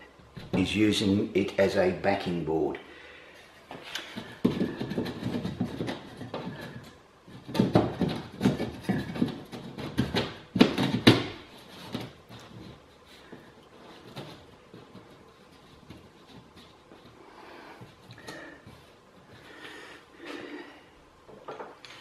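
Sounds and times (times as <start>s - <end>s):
plasterboard scraping and knocking: 4.1s - 17.1s.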